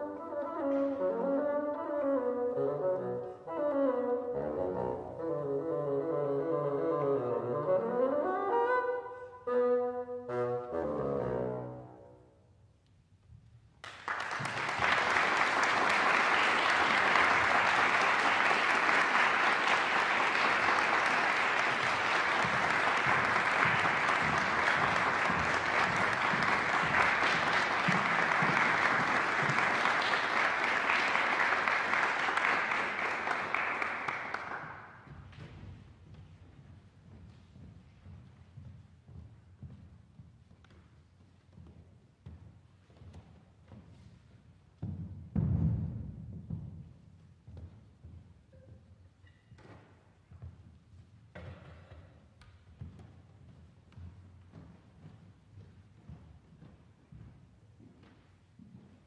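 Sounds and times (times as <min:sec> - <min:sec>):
solo bassoon playing: 0:00.0 - 0:12.2
audience applauding: 0:13.8 - 0:35.0.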